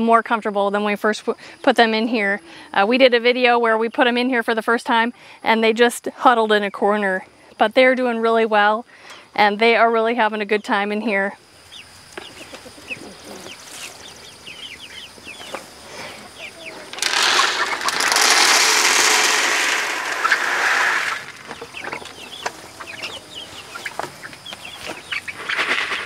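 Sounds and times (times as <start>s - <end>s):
chicks peeping: 11.5s - 26.0s
feed pouring into plastic feeder: 16.9s - 21.5s.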